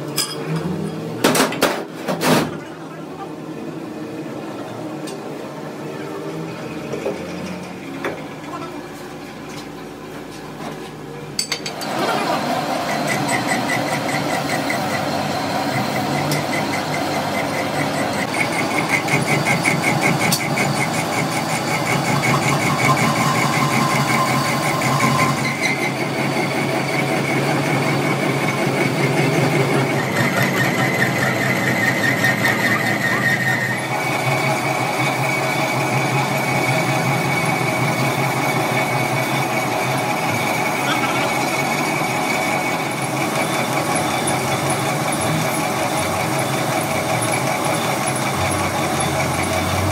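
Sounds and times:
metal lathe whining: 11.6 - 49.9.

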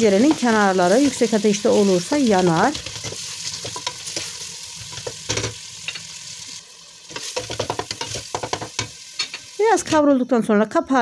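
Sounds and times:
meat and onion sizzling in a pot: 0.0 - 10.4
wooden spoon scraping a pot: 7.1 - 9.4
spoon tapping a pot: 7.2 - 9.4.

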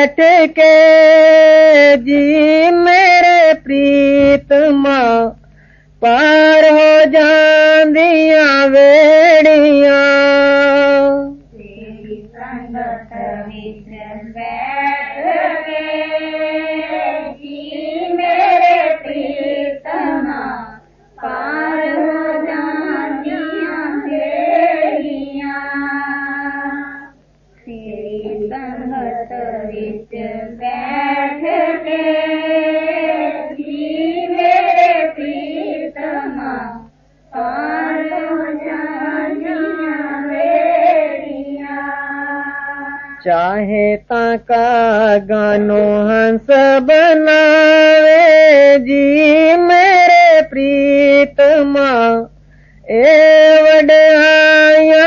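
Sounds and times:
faint low hum: 0.0 - 55.0
voices singing a hymn: 0.0 - 55.0.

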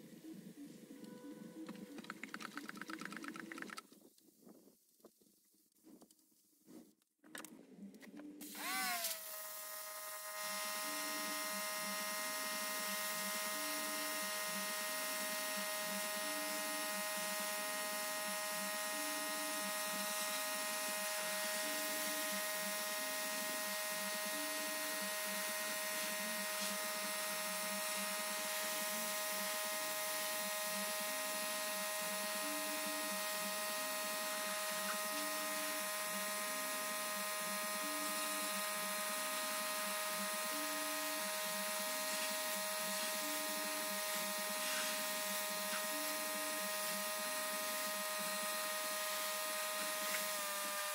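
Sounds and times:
small electric motor whining: 8.4 - 50.9.

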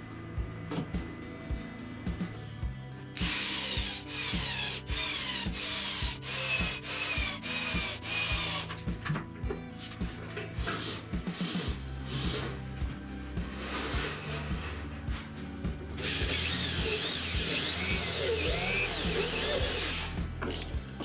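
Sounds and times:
background music with steady beat: 0.0 - 21.0
cordless drill driving a screw: 3.2 - 8.8, 16.0 - 20.7.

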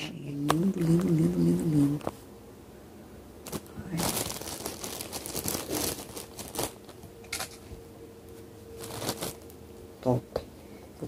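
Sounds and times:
plastic packaging crinkling: 3.4 - 7.7, 8.7 - 9.6.

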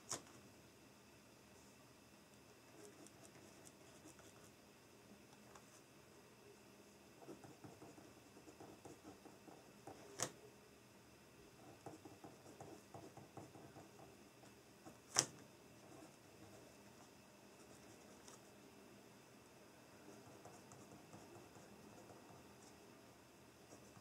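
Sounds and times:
pen scratching on paper: 2.7 - 4.5, 7.2 - 10.3, 11.6 - 14.2, 15.8 - 18.5, 20.0 - 22.8.

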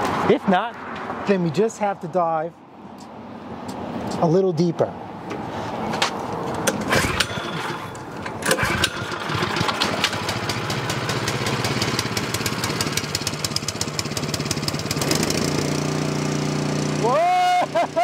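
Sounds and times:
small engine cranking and running: 6.7 - 17.2.

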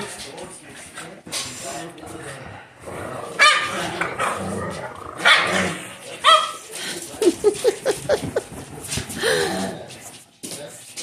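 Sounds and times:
dog barking: 3.4 - 4.4, 5.2 - 6.6.

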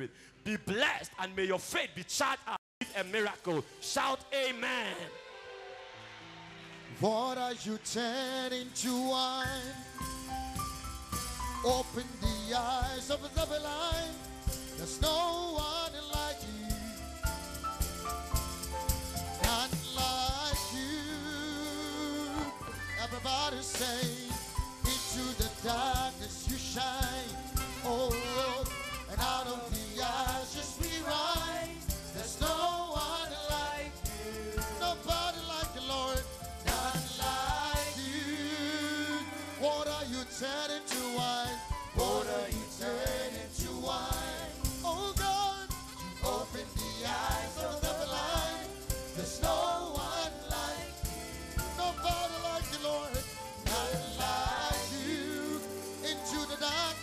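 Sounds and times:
man singing into microphone: 7.0 - 10.0, 11.6 - 17.2, 19.4 - 57.0
steady beat: 9.6 - 38.4, 41.0 - 57.0.

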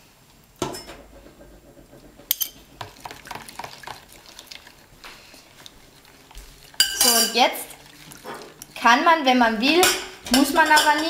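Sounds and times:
spoon clinking against bowl: 6.8 - 7.4.

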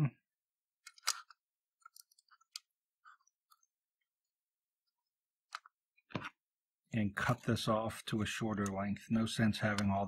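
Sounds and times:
fingers handling thin wire: 0.8 - 3.8.

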